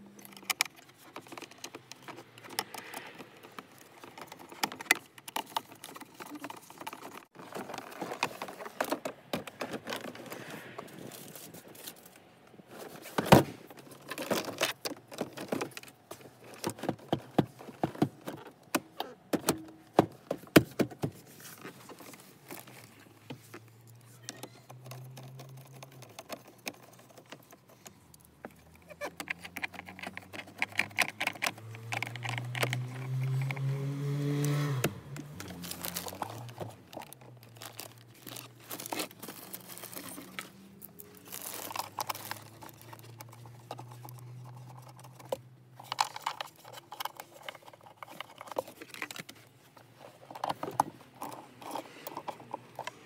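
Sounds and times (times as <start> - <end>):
plastic trim clicking and rattling: 0.2 - 10.3, 21.9 - 33.7, 34.4 - 49.4.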